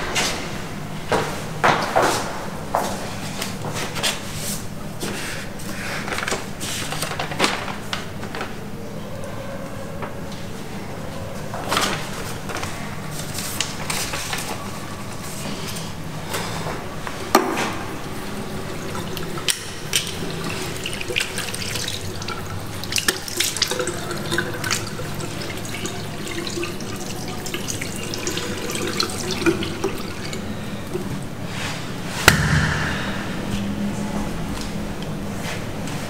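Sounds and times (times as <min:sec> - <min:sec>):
sharp knock: 0:32.2 - 0:33.8.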